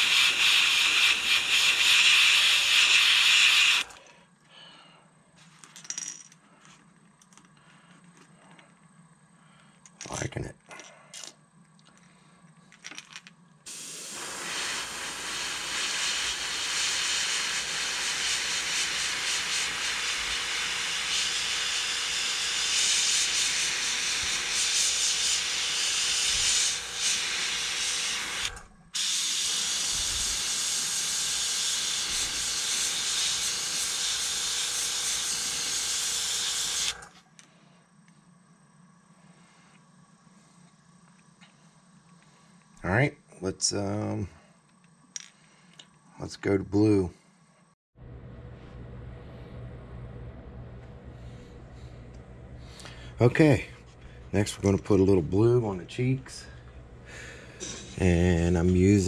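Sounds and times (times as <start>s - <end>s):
rushing air hiss: 13.7s - 20.3s.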